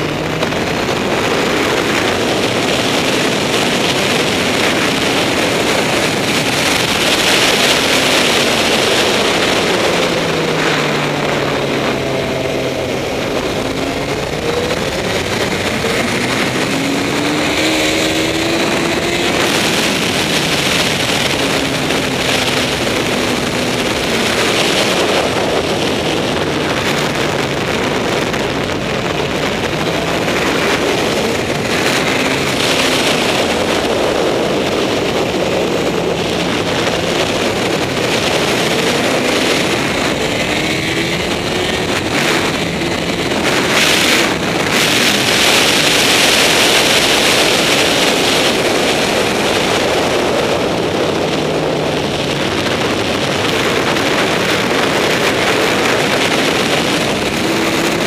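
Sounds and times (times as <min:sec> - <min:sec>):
motorcycle engine revving high: 0:00.0 - 0:58.0
wind noise on microphone: 0:00.0 - 0:58.0.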